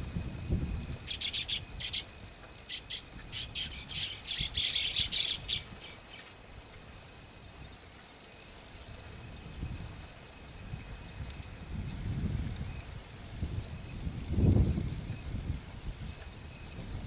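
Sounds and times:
bird harsh chirping chatter: 1.1s - 6.3s.

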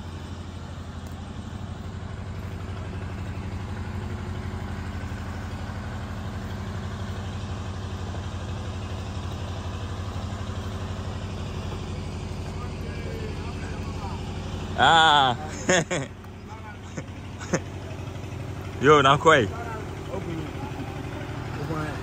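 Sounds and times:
engine running steadily: 0.0s - 22.0s.

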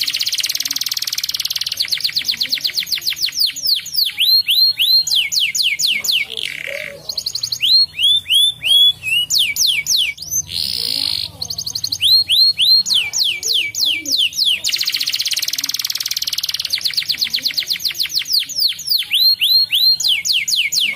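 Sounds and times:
canary singing trills: 0.0s - 20.9s.

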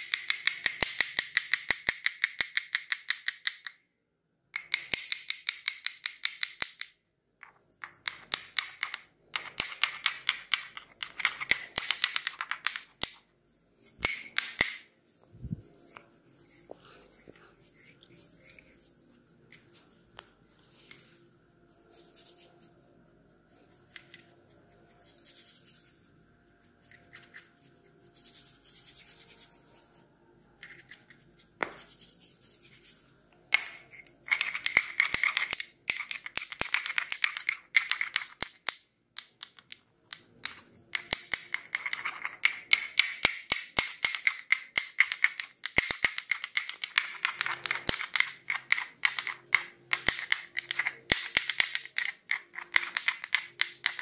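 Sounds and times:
fast crisp scratches and clicks: 33.9s - 38.7s, 39.4s - 54.0s.

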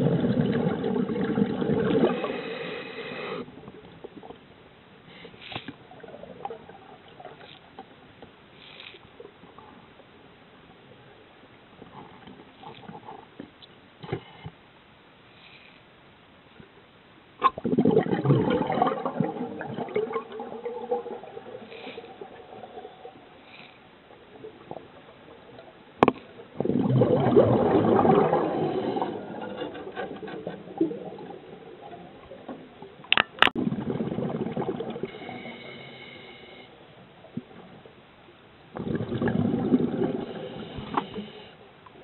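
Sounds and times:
regulator exhaling bubbles: 0.0s - 3.5s, 17.5s - 23.2s, 26.5s - 31.6s, 38.8s - 41.2s.

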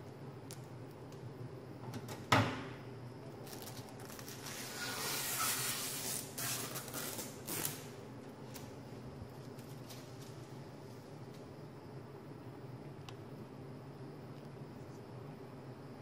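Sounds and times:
plastic film crinkling: 3.4s - 7.9s.

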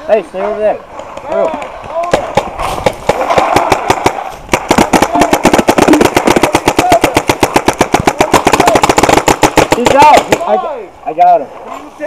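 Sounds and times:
paintball marker firing: 1.0s - 10.6s.

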